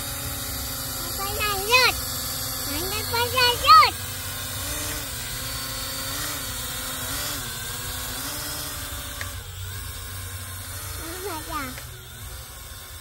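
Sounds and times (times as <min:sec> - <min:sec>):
drone propellers buzzing: 0:00.0 - 0:13.0.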